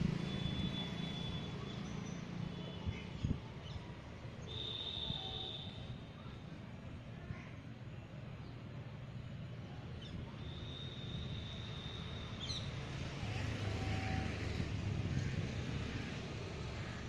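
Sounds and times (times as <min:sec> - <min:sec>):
passing vehicle rumble: 0:00.0 - 0:02.5, 0:11.9 - 0:17.0
high whistle ending in chirp: 0:10.4 - 0:12.4.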